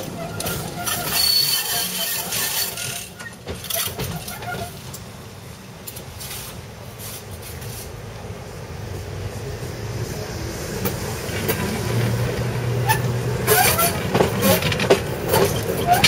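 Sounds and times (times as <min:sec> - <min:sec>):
wheels clacking and squeaking: 0:00.0 - 0:05.1, 0:10.8 - 0:16.0
tram running rumble: 0:00.0 - 0:16.0.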